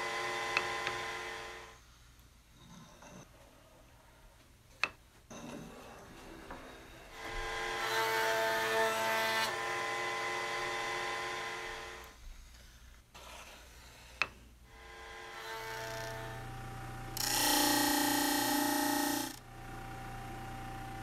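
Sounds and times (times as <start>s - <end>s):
router whining: 14.7s - 21.0s.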